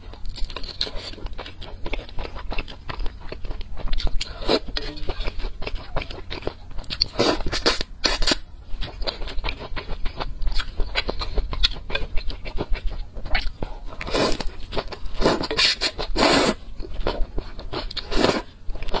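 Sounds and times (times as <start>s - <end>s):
wet chewing: 0.0s - 19.0s
slurping noodles: 15.2s - 16.6s, 18.0s - 18.5s.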